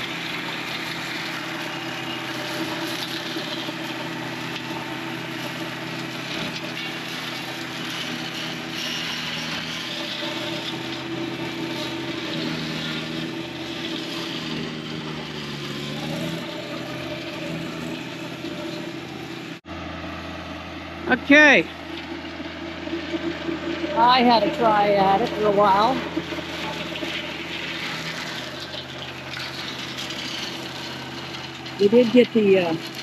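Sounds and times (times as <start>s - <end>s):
flail mower shredding vines: 0.0s - 33.0s
tractor diesel engine under load: 0.0s - 33.0s.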